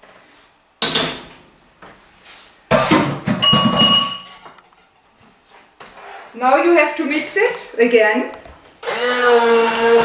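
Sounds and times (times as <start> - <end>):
metal kitchenware knock: 2.7 - 4.5
metal clatter with ringing tone: 3.4 - 4.4.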